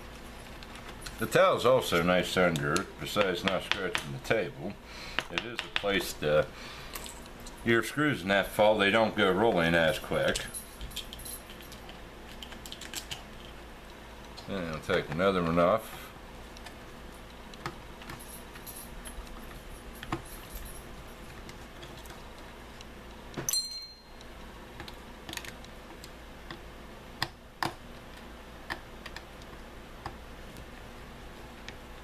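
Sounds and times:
metallic clink: 23.5 - 24.2.

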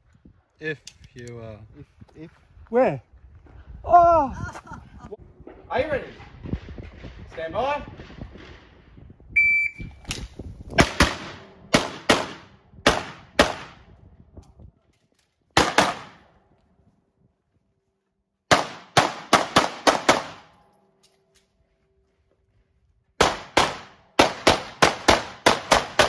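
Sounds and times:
pistol shots: 10.8 - 13.8, 15.6 - 16.2, 18.5 - 20.6, 23.2 - 26.0.

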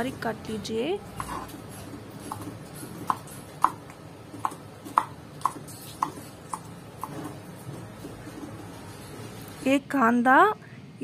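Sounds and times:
knife chopping on wooden board: 2.2 - 7.4.

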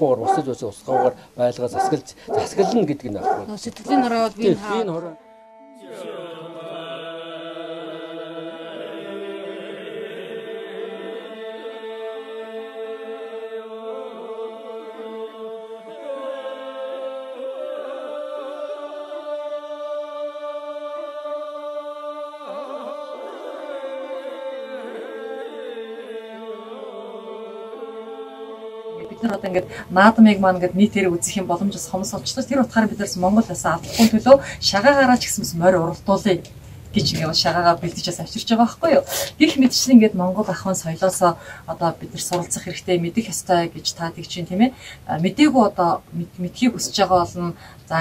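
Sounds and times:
voices chanting: 0.0 - 36.4.

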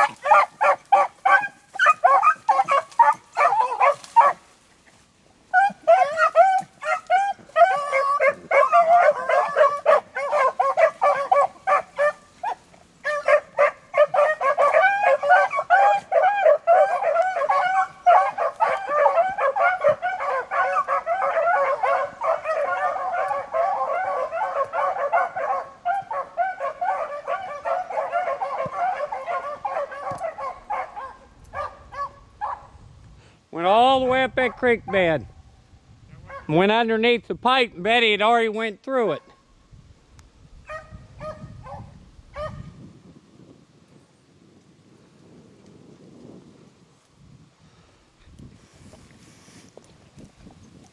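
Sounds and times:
dogs baying: 0.0 - 4.5, 5.5 - 32.7, 40.7 - 42.6.

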